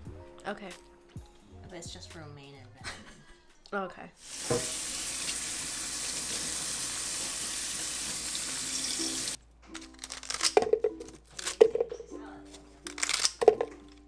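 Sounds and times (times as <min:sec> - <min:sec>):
faucet running water into sink: 0:04.2 - 0:09.4.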